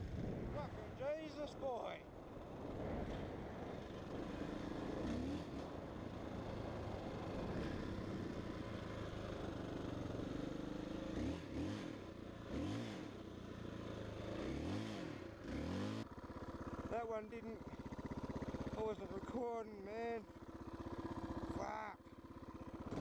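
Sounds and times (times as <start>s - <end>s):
dirt bike engine revving: 4.0s - 9.2s, 9.9s - 17.0s, 22.4s - 23.0s.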